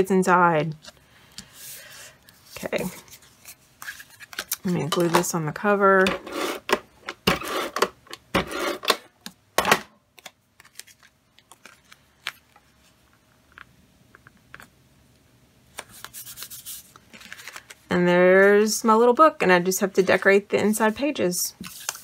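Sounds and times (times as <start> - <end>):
tape runner scraping on cardstock: 6.1 - 9.0.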